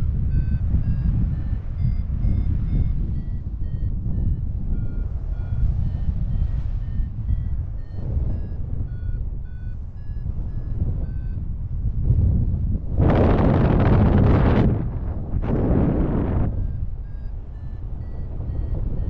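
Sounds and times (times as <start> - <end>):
wind rumble on microphone: 0.0 - 19.0
short high beeps: 0.1 - 11.4, 16.5 - 19.0.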